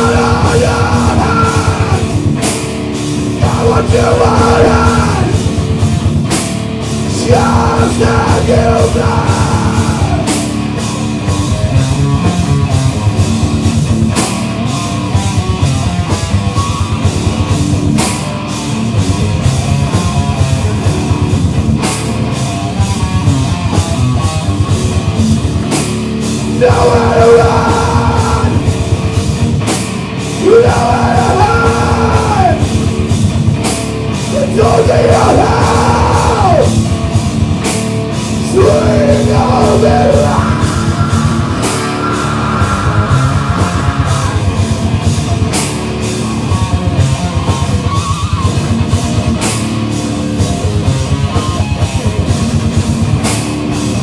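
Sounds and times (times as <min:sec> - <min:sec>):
person singing: 0:00.0 - 0:02.2, 0:03.4 - 0:05.4, 0:07.1 - 0:10.4, 0:26.6 - 0:28.7, 0:30.4 - 0:32.7, 0:34.3 - 0:36.8, 0:38.4 - 0:44.7
rock band playing: 0:00.0 - 0:54.0.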